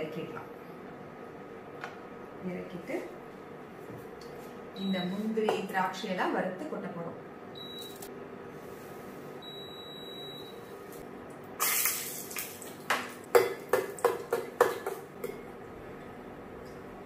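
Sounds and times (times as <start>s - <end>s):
nuts frying in hot fat: 11.6s - 15.2s.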